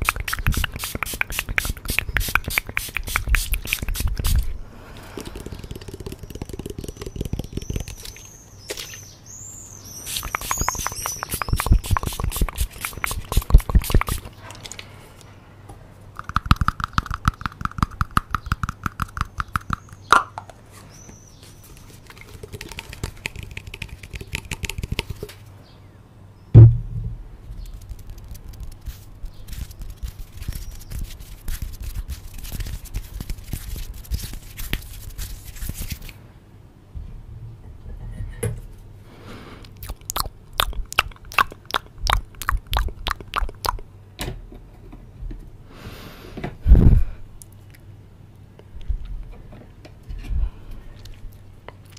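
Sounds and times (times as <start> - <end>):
fingers scratching microphone grille: 10.1 - 14.3, 27.6 - 36.1
loud thump: 26.5 - 27.3.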